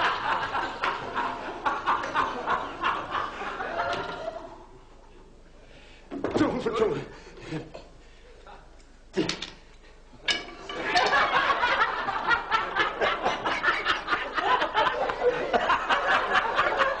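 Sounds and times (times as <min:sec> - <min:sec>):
hearty laughter: 0:00.0 - 0:04.7, 0:10.7 - 0:17.0.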